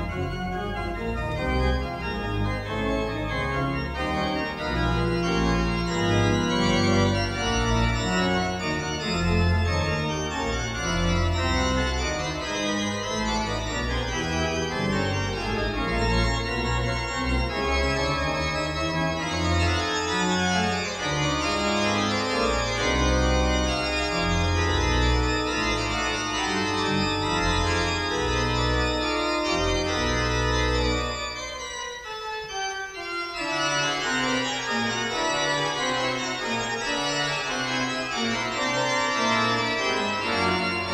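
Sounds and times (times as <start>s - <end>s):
pipe organ playing: 0.0s - 40.9s.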